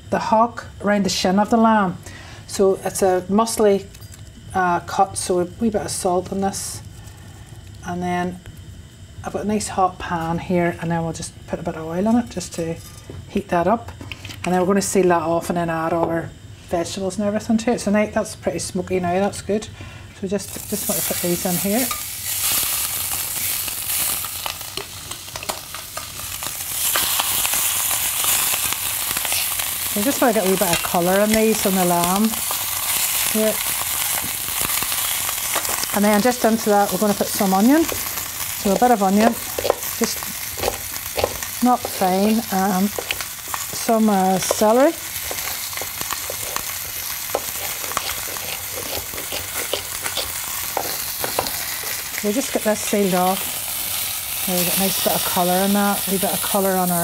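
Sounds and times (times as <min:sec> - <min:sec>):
meat sizzling in hot oil: 0:20.4 - 0:57.0.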